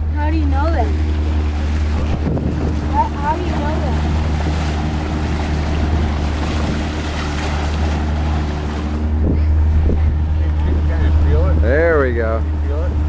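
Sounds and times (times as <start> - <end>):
boat motor running: 0.0 - 13.0
water rushing: 0.0 - 13.0
wind rushing: 1.8 - 3.3.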